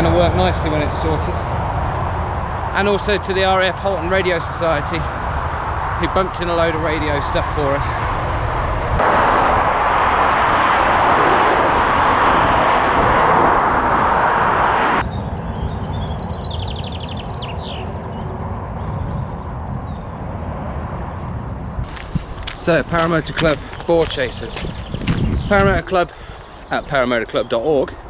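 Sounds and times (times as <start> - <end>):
traffic noise: 0.0 - 28.0
small birds singing: 15.0 - 28.0.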